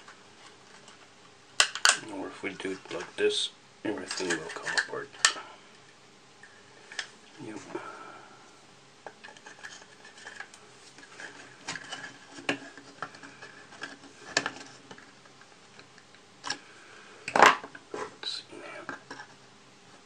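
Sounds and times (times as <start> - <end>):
plastic cracking: 1.6 - 2.1.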